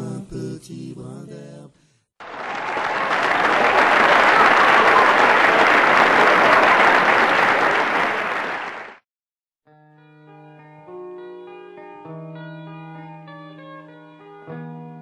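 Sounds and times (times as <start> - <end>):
crowd applauding: 2.2 - 9.0.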